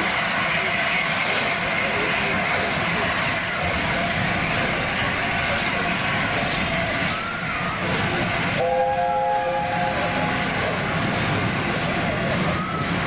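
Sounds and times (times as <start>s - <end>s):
steady rushing noise: 0.0s - 13.0s
steam locomotive chime whistle: 8.6s - 10.4s.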